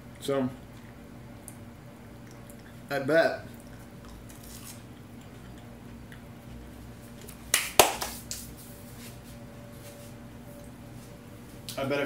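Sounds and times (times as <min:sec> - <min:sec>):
faint steady hum: 0:00.0 - 0:12.0
hand claps: 0:07.5 - 0:08.4.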